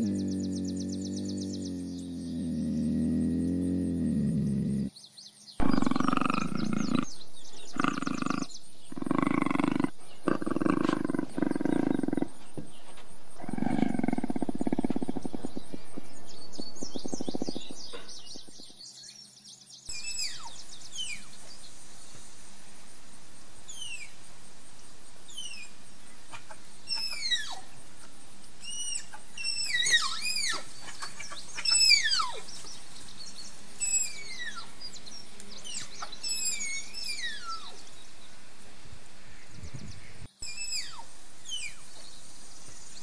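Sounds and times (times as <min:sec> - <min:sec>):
cougar calling: 0:00.0 - 0:04.9, 0:05.6 - 0:18.7, 0:25.3 - 0:32.5
bird chirping: 0:00.0 - 0:22.5, 0:23.5 - 0:38.4, 0:39.3 - 0:43.0.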